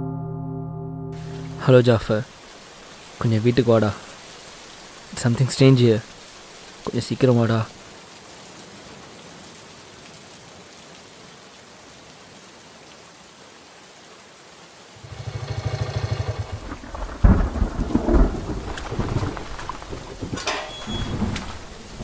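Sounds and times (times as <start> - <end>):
steady rain: 1.2 - 22.0
thunderclap and rolling rumbles: 16.2 - 22.0.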